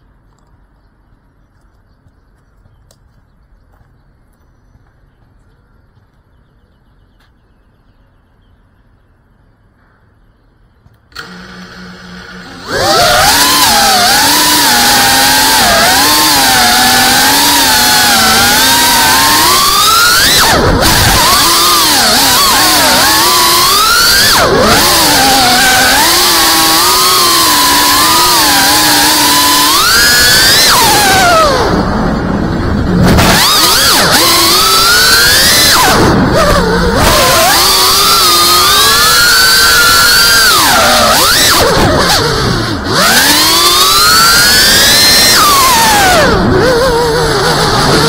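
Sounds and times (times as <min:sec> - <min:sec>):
bird chirps: 0:00.0 - 0:11.1
drone motors humming: 0:00.0 - 0:48.0.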